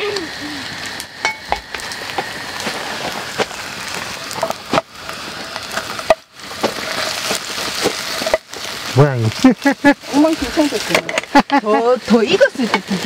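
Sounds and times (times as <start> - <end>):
batter sizzling in oil: 0.0 - 13.0
wooden spatula scraping and tapping: 5.6 - 8.6.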